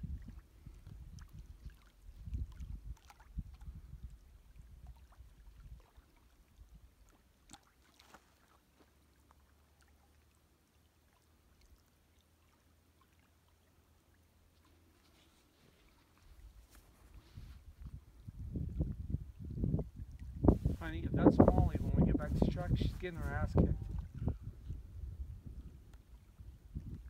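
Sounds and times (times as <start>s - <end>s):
wind buffeting microphone: 0.0s - 4.2s, 17.2s - 27.0s.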